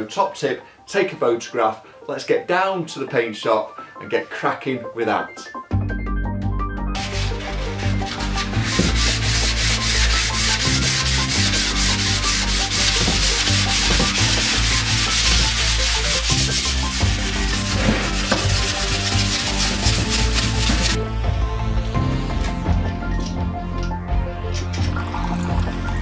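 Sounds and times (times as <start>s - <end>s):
wet-sanding with abrasive paper: 7.0s - 21.0s.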